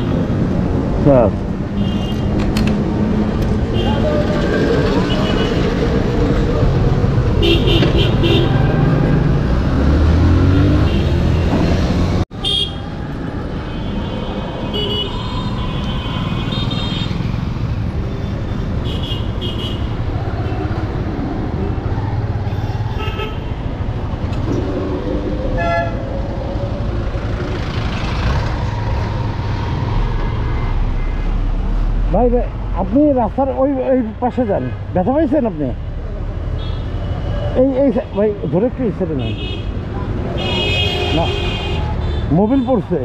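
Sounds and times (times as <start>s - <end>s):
traffic engines rumbling: 0.0s - 43.0s
vehicle horns beeping: 7.4s - 9.0s, 13.7s - 17.2s, 39.2s - 39.7s, 40.4s - 42.8s.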